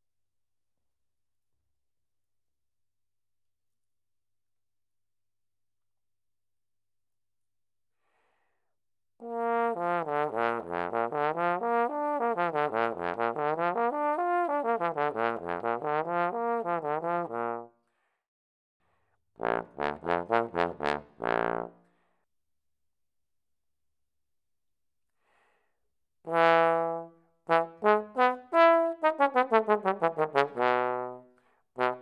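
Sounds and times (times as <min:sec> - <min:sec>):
solo trombone: 0:09.2 - 0:17.7, 0:19.4 - 0:21.8, 0:26.3 - 0:32.0.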